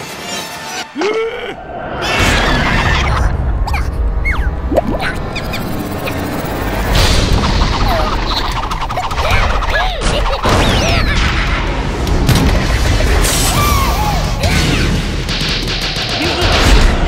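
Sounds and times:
squeaky chirps: 3.7 - 6.5.

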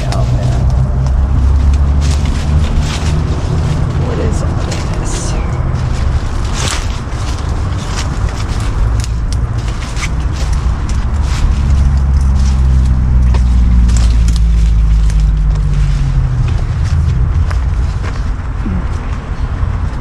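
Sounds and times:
footsteps crunching in brush: 0.0 - 20.0
heavy vehicle engine: 0.0 - 20.0
road traffic rumbling: 0.0 - 20.0.

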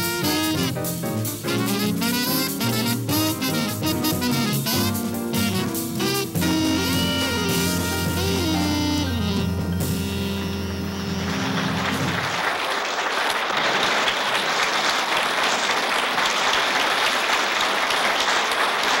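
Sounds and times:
jazz band held chord: 0.0 - 12.5
audience applause: 10.5 - 19.0.

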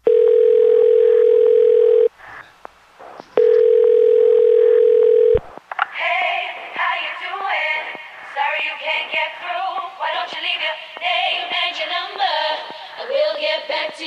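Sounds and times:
telephone ringing tone: 0.0 - 2.1, 3.4 - 5.4
woman singing with pop music: 6.0 - 14.0.

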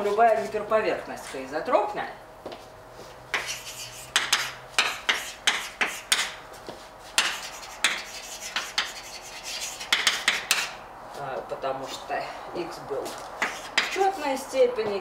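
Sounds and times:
chalk tapping on blackboard: 3.3 - 6.4, 7.2 - 10.8, 13.4 - 14.3.

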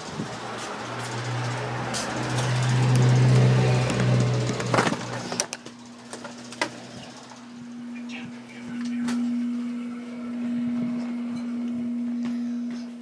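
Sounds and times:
steady low hum: 0.0 - 13.0
sharp clicks and knocks: 0.6 - 6.9.

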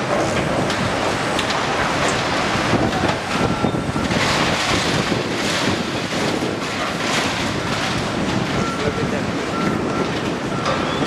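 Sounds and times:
construction site noise: 0.0 - 11.0
diesel engine working: 0.0 - 11.0
wind on microphone: 2.4 - 11.0.

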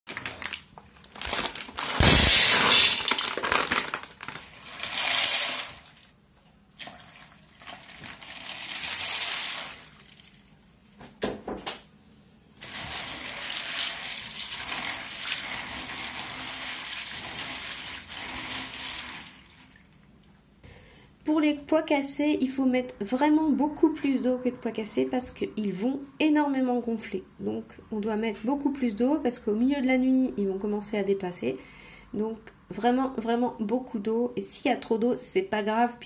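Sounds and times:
chickpeas rattling in metal bowl: 2.1 - 5.9, 7.8 - 10.0, 12.6 - 19.5
water rushing into bowl: 12.6 - 19.9.

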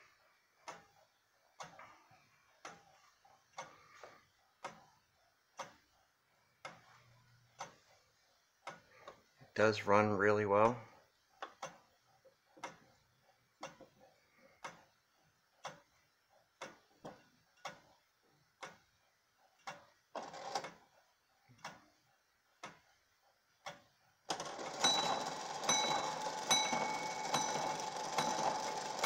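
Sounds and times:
clock ticking: 0.6 - 2.0, 2.6 - 5.9, 6.6 - 11.9, 12.5 - 15.0, 15.6 - 18.0, 18.6 - 20.7, 21.5 - 21.9, 22.6 - 22.9, 23.6 - 29.0
clock strike train whirring: 24.3 - 29.0
clock bell ringing: 24.4 - 29.0.

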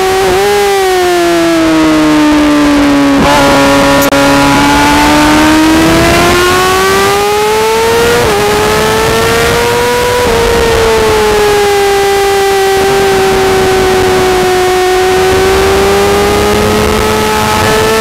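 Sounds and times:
sportbike engine at track speed: 0.0 - 18.0.

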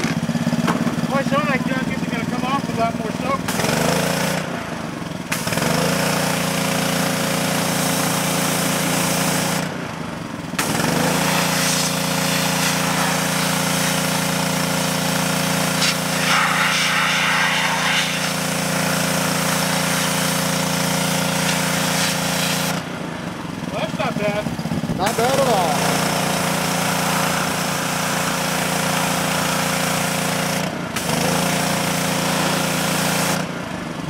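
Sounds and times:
pressure washer engine humming: 0.0 - 34.0
high-pressure spray hissing on metal: 11.3 - 15.0, 15.6 - 22.7.

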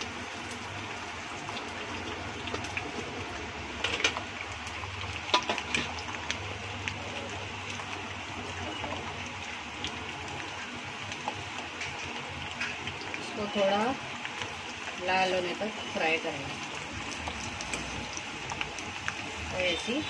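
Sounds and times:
garlic sizzling in hot oil: 0.0 - 20.0
oil popping: 1.2 - 13.2.

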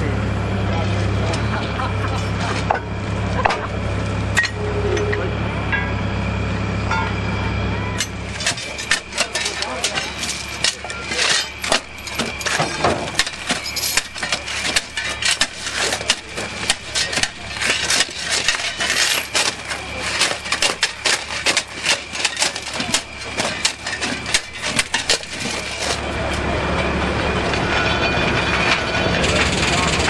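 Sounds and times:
steady low hum: 0.0 - 30.0
hand tools clanking on rails: 8.0 - 26.3.

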